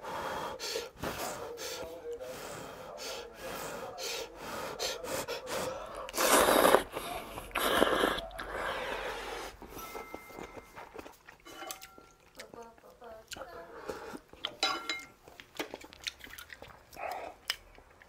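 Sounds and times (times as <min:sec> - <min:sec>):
breathing: 0:00.0 - 0:06.1, 0:08.5 - 0:09.8, 0:13.7 - 0:14.3
chewing: 0:05.5 - 0:18.0
person slurping noodles: 0:06.1 - 0:09.7.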